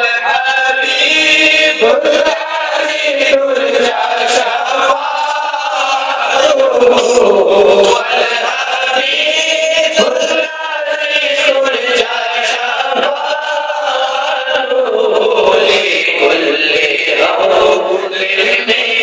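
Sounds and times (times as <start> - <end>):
man chanting a hymn: 0.0 - 19.0.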